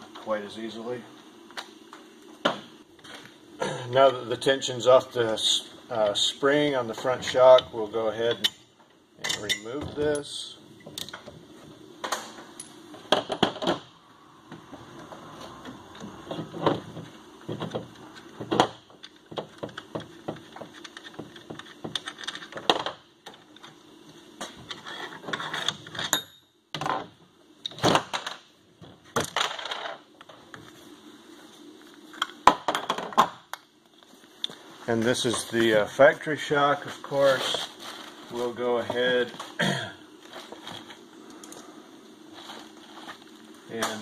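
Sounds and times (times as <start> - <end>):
metal tools clinking and knocking: 9.2 - 10.3.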